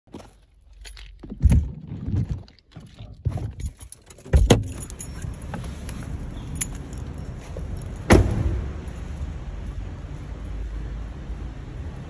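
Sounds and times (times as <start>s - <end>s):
objects handled in car: 0.1s - 9.3s
heavy thumps: 8.0s - 8.8s.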